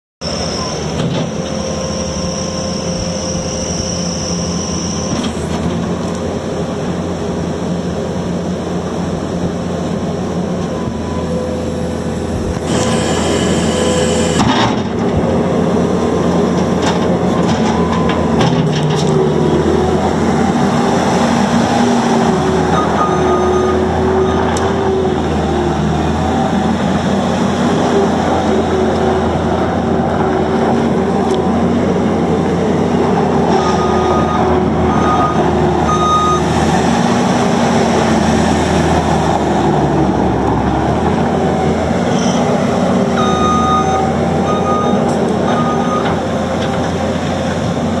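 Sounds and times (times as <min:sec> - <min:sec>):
diesel engine running: 0:00.2 - 0:48.0
backup alarm beeping: 0:33.6 - 0:36.5, 0:43.2 - 0:46.1.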